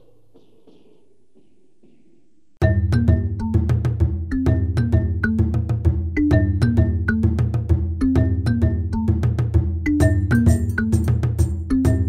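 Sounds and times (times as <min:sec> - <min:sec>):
percussive beat: 0:00.0 - 0:12.0
held bass line: 0:02.6 - 0:12.0.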